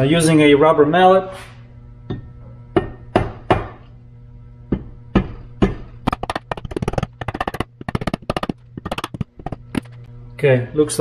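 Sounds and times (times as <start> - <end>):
rubber mallet tapping metal: 4.7 - 9.9.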